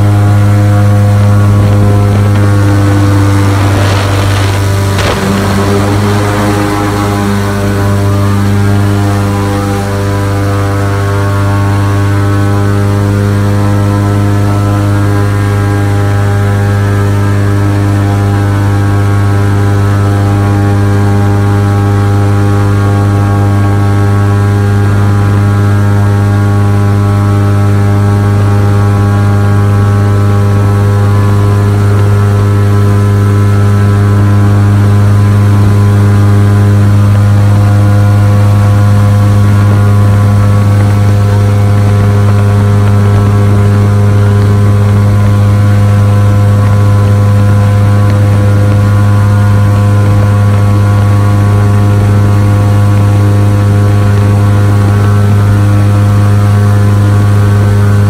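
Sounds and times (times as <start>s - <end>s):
airboat engine and propeller drone: 0.0s - 58.0s.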